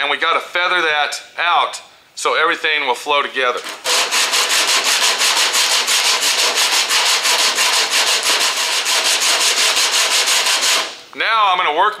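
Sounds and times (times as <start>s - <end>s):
sandpaper scratching filler: 3.6s - 11.0s.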